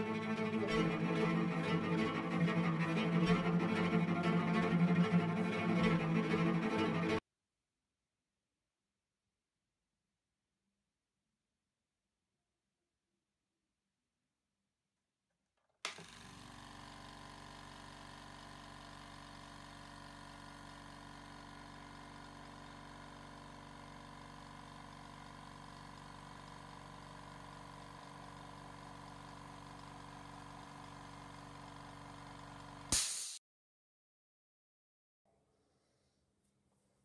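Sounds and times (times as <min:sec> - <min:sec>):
air compressor running: 0:15.9 - 0:33.4.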